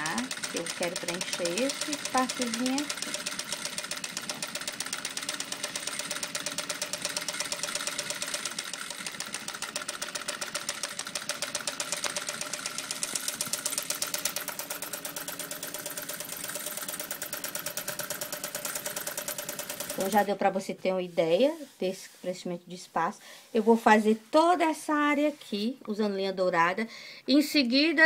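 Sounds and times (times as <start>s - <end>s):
sewing machine needle clatter: 0.0s - 20.3s
sewing machine motor hum: 0.0s - 20.4s.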